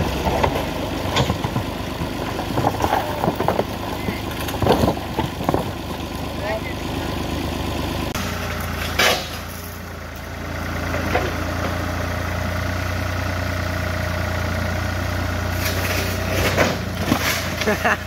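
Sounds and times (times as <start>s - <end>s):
tractor engine running: 0.0s - 18.0s
loud metal clank: 8.2s - 9.8s.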